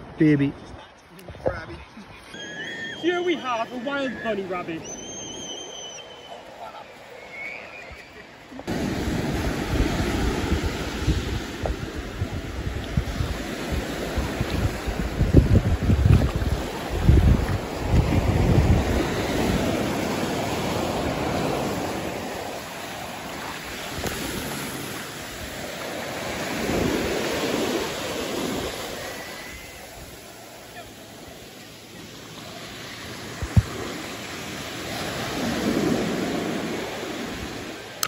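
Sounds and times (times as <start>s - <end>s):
small waves breaking on beach: 1.9s - 38.0s
wind buffeting microphone: 8.7s - 22.7s, 33.2s - 34.0s.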